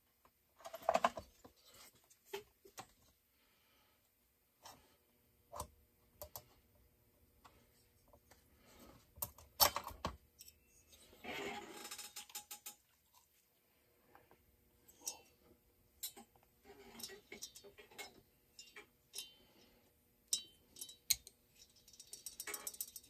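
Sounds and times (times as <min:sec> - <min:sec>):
tools and metal parts clinking: 0:16.0 - 0:19.5, 0:20.3 - 0:23.0.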